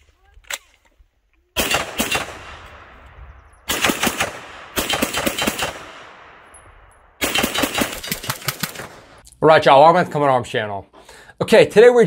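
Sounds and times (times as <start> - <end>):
rapid gunfire with echo: 1.6 - 3.0, 3.7 - 6.5, 7.2 - 9.2.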